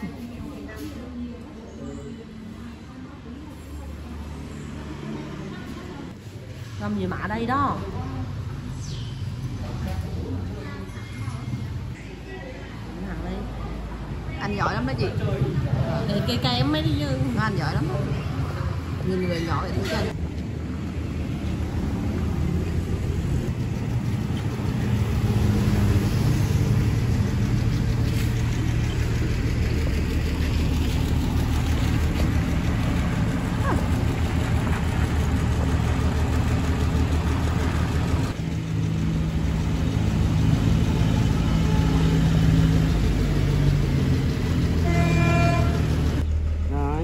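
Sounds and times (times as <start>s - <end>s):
vehicle engine running: 19.8s - 47.0s.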